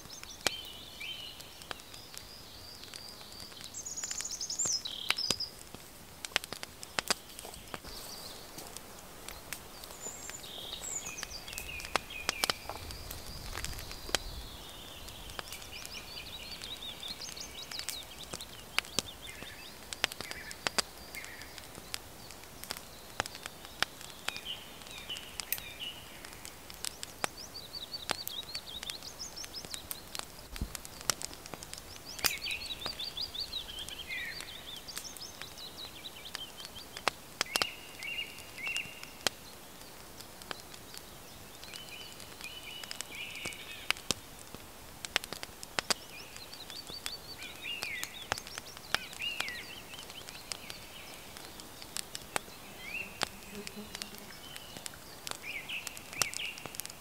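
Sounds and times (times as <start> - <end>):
songbirds singing: 0.0 - 57.0
wood fire crackling: 0.0 - 57.0.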